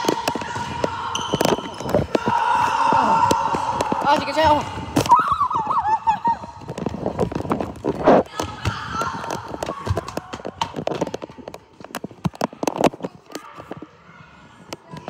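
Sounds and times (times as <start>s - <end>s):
children shouting: 0.0s - 6.7s
running footsteps on gym floor: 0.0s - 12.6s.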